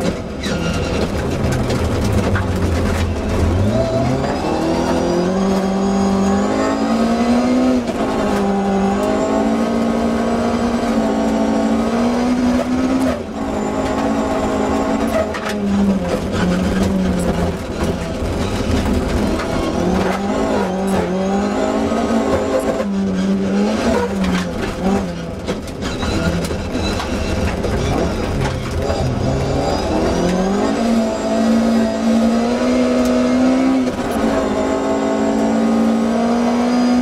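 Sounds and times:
gravel clattering from tyres: 0.0 - 4.2
car engine at full throttle: 0.0 - 37.0.

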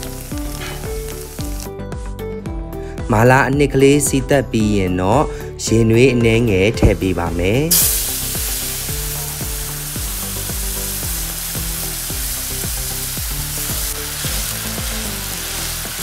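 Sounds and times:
liquid sizzling in hot wok: 0.0 - 1.7, 7.7 - 16.0
background music: 0.0 - 16.0.

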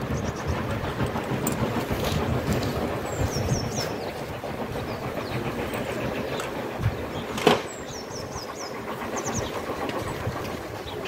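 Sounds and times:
engine rumble: 0.0 - 11.0
small birds chirping: 0.0 - 11.0.

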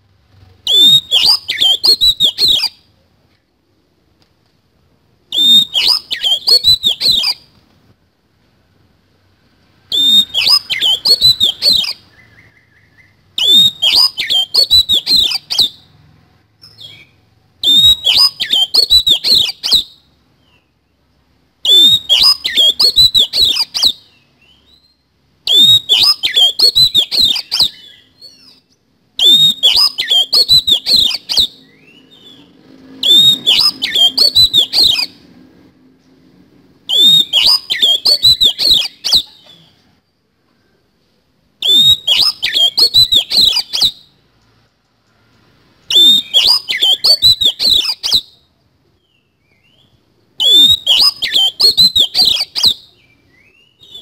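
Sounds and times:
magpie-robin song: 0.6 - 2.9, 5.3 - 7.5, 9.9 - 16.0, 16.6 - 21.0, 21.6 - 35.3, 36.9 - 39.9, 41.6 - 44.2, 45.8 - 54.0.

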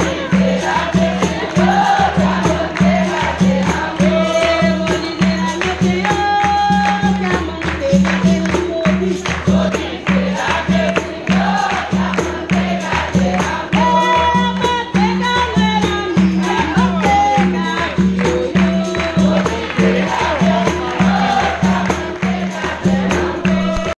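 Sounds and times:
group singing chorus: 0.0 - 6.2, 8.9 - 14.6, 16.1 - 24.0
berimbaus and percussion beat: 0.0 - 24.0
hand claps: 0.0 - 24.0.

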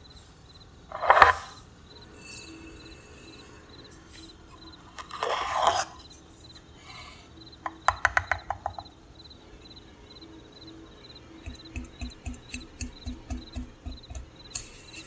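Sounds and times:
faint cricket-like chirping: 0.0 - 15.0
spoon scooping salt: 11.4 - 15.0.

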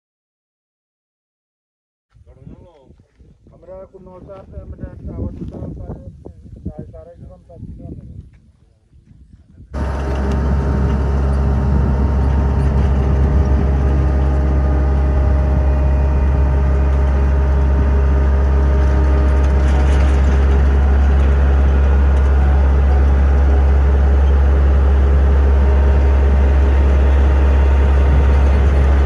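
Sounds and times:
heavy engine running: 9.8 - 29.0.

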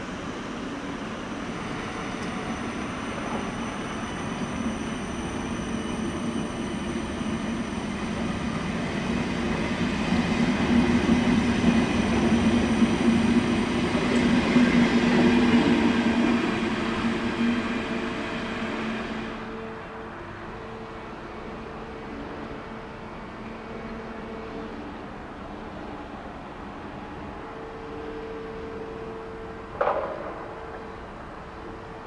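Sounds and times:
train wheels rumbling on rails: 0.0 - 32.0.

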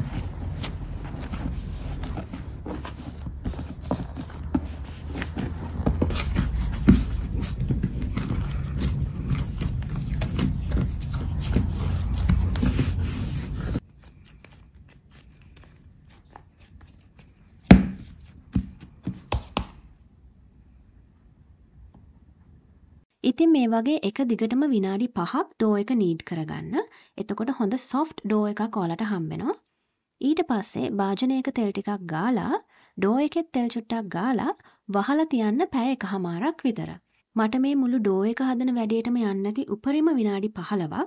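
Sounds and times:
low hum: 0.0 - 16.3
hands kneading dough: 0.0 - 20.1.

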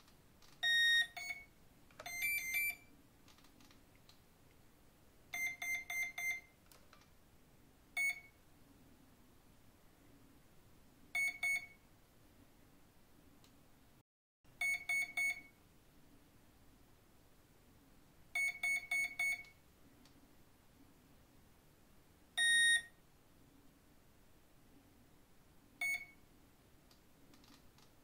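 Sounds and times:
electronic beeps from motor: 0.6 - 2.9, 5.4 - 6.5, 11.2 - 11.8, 14.6 - 15.5, 18.4 - 19.5, 22.4 - 22.9, 25.8 - 26.2.

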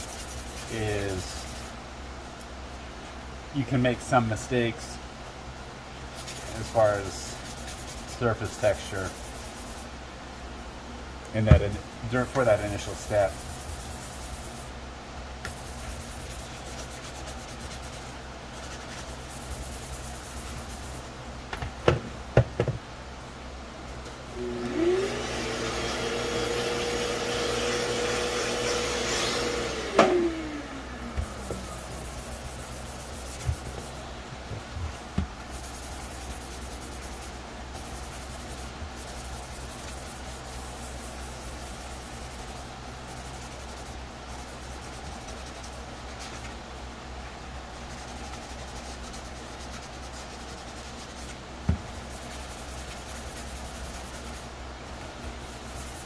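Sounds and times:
sanding sponge scuffing plastic: 0.0 - 1.7, 6.2 - 9.9, 12.3 - 14.8, 15.5 - 21.1, 31.2 - 34.0, 34.6 - 46.6, 47.8 - 54.5, 55.4 - 56.0.

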